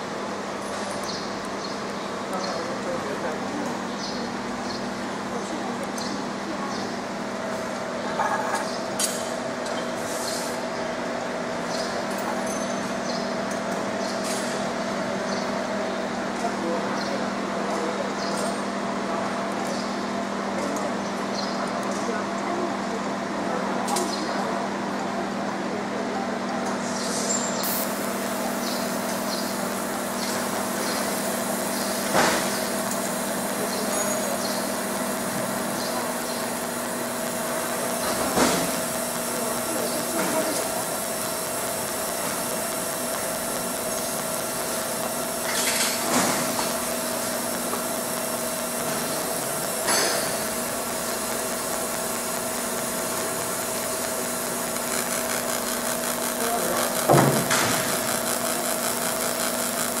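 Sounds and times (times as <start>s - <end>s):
laser engraving noise: 27.3s - 60.0s
machine hum: 27.6s - 60.0s.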